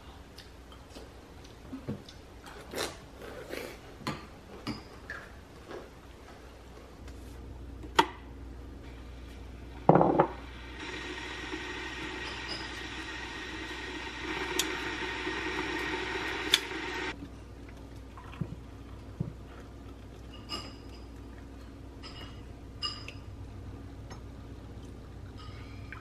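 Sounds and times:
electric kettle boiling hiss: 0:08.9 - 0:17.2
hot water pouring into mugs: 0:10.2 - 0:17.2.

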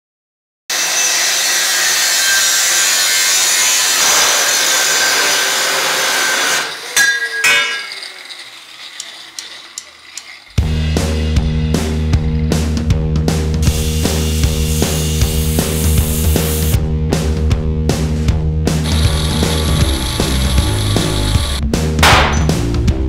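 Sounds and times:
power tool running: 0:00.7 - 0:12.6, 0:13.5 - 0:16.8, 0:18.8 - 0:21.6
hard rock music: 0:10.6 - 0:23.0.

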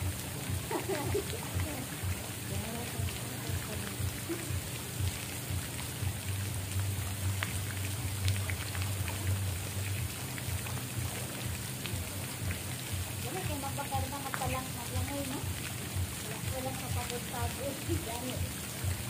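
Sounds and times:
low rumble: 0:00.0 - 0:13.6
patter of falling water: 0:00.0 - 0:19.0
small water drips: 0:00.0 - 0:19.0.

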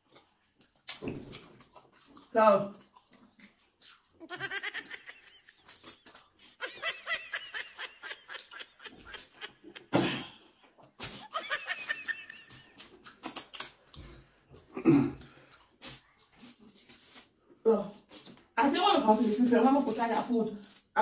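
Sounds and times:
person laughing: 0:04.2 - 0:10.4, 0:11.0 - 0:12.9.

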